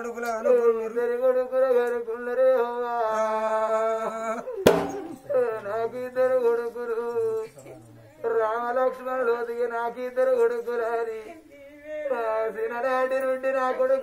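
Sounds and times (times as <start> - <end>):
sharp percussive hit: 4.7 - 5.4
person singing folk ballad: 8.2 - 14.0.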